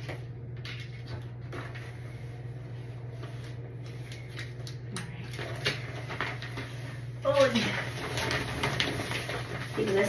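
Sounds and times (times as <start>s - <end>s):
steady low hum: 0.0s - 10.0s
plastic sheeting rustling: 5.3s - 10.0s.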